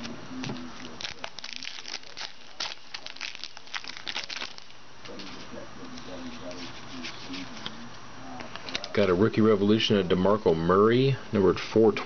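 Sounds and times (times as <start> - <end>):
wrapper tearing and crinkling: 0.8 - 4.8.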